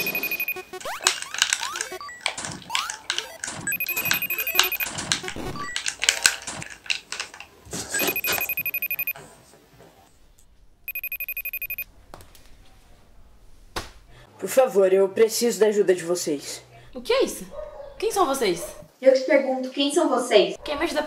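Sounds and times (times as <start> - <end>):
electronic ringtone trill: 0.0 - 5.8, 8.0 - 9.1, 10.9 - 11.8
crackling digital noise: 0.0 - 6.2.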